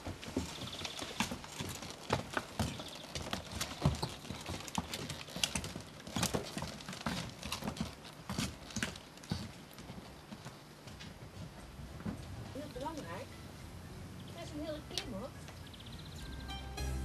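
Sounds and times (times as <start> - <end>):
hooves clip-clopping on cobblestones: 0.0 - 13.5.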